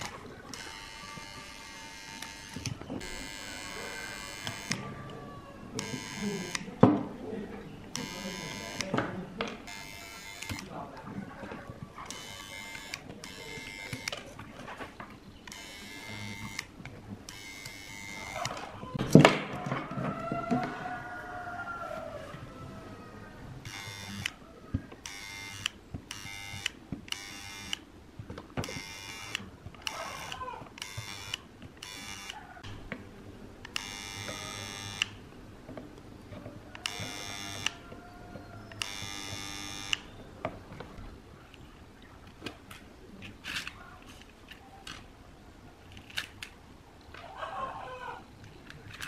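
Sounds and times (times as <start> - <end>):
soldering gun buzzing: 0.5 - 4.8, 5.8 - 6.7, 7.9 - 8.9, 9.7 - 10.6, 17.3 - 18.6, 23.6 - 24.3, 25.0 - 27.8, 28.6 - 32.4, 33.8 - 35.2, 36.8 - 37.8, 38.8 - 40.1.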